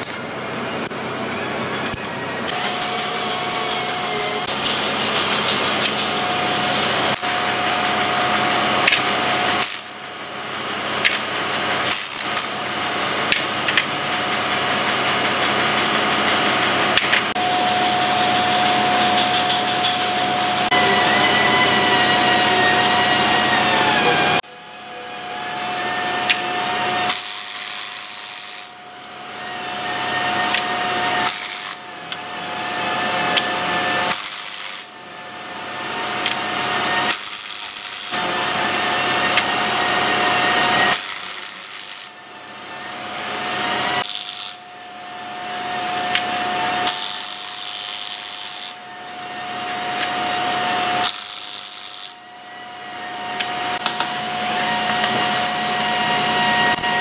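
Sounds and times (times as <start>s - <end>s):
cordless impact wrench: 11.8s - 12.6s, 27.1s - 28.8s, 31.2s - 31.8s, 33.7s - 34.9s, 36.2s - 38.6s, 39.3s - 42.2s, 44.0s - 44.6s, 45.8s - 48.8s, 49.7s - 52.2s.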